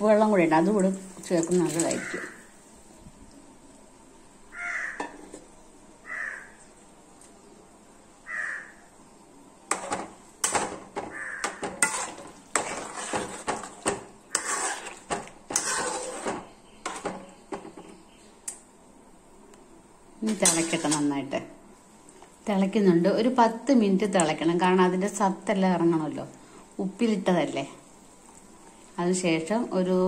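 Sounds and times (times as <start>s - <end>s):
crow cawing: 2.0s - 2.4s, 4.5s - 5.1s, 6.0s - 6.6s, 8.2s - 8.9s, 11.1s - 11.6s
ladle scraping metal pan: 9.7s - 17.6s, 20.2s - 21.2s.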